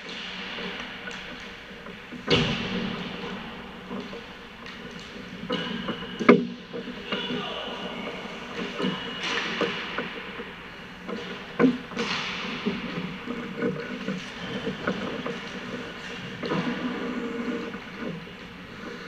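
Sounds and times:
skates scraping on ice: 11.0 - 19.0.

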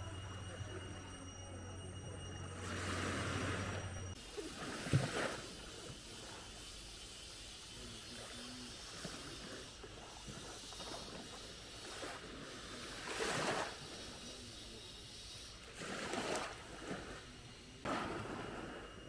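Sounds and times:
steady surf hiss: 0.0 - 19.0
small waves lapping on beach: 2.6 - 19.0.

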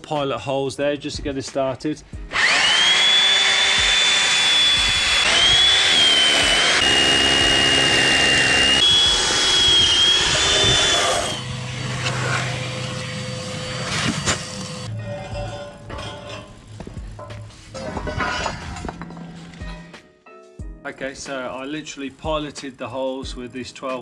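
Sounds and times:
hammer drill drilling concrete: 2.3 - 14.9.

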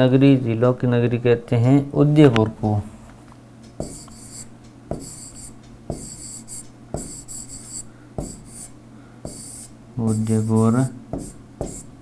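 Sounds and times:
stylus tapping on screen: 3.6 - 8.7, 9.3 - 9.6, 11.1 - 11.9
stylus scratching hiss: 3.8 - 12.0.

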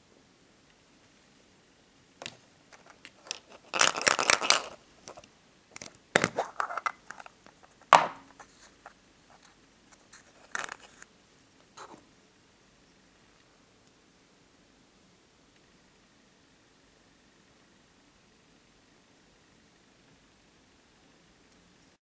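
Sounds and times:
plastic capsule snapping open: 2.2 - 7.3
plastic scraping and crackling: 2.2 - 8.0, 10.2 - 11.1.

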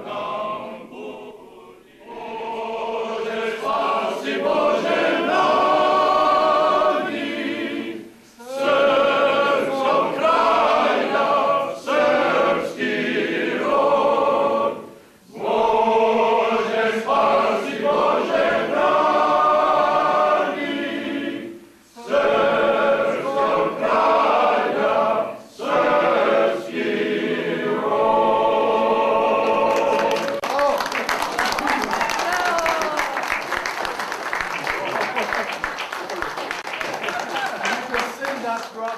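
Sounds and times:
men's choir singing a cappella: 0.0 - 30.4.

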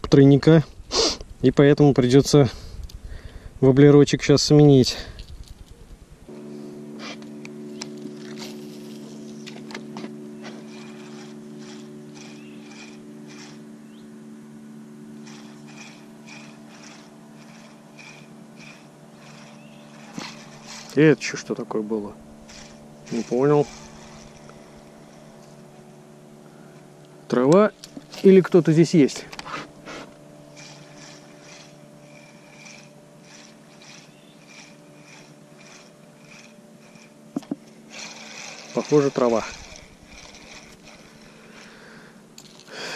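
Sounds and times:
steady low hum: 0.0 - 42.9
spinning reel ticking: 10.6 - 13.7, 15.2 - 21.4, 22.1 - 25.4, 30.5 - 42.6.

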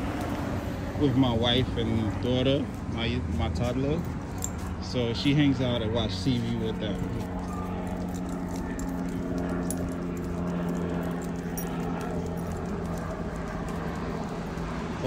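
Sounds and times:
low mechanical hum: 0.0 - 15.0
dog tags and claws clicking: 3.6 - 5.0, 6.4 - 14.8.

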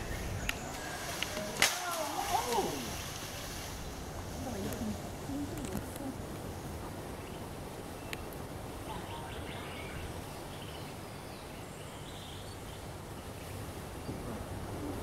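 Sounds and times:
low rumble: 0.0 - 1.6
faint bird calls: 0.0 - 15.0.

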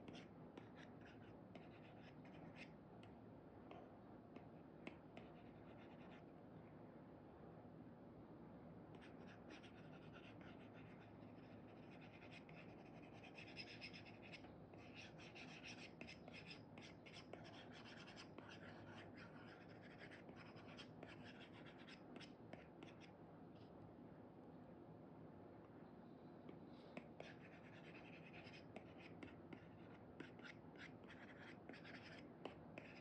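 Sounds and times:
low room hum: 0.0 - 33.0
stylus scratching on screen: 9.0 - 23.1, 27.0 - 33.0.

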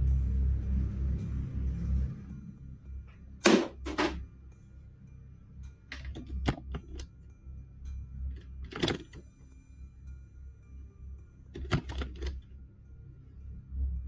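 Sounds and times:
low steady hum: 0.0 - 14.0
sharp bangs: 3.4 - 4.2.

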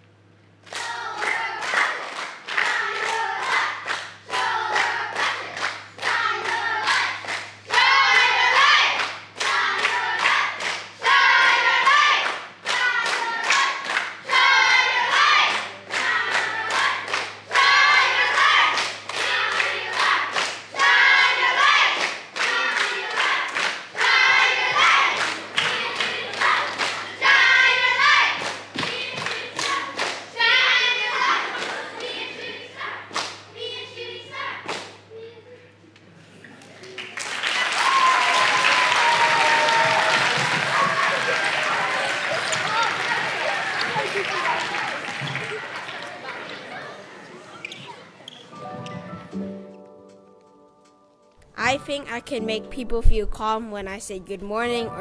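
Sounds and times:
children singing together: 2.6 - 34.7
sharp claps and thuds: 28.4 - 30.2, 39.7 - 44.3.

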